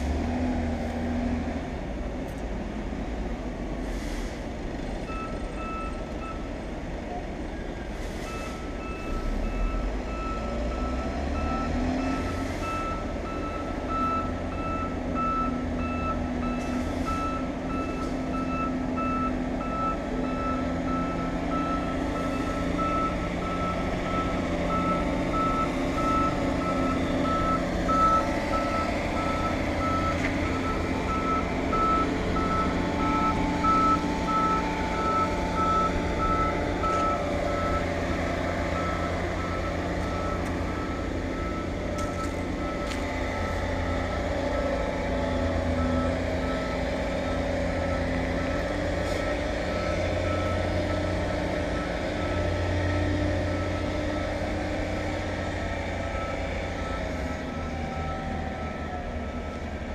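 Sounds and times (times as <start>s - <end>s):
diesel engine running: 0.0s - 59.9s
reversing alarm beeping: 5.1s - 6.5s, 8.2s - 59.9s.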